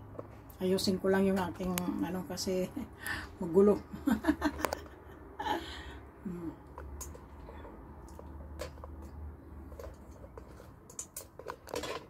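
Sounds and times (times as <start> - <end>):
woman humming: 5.4 - 6.7.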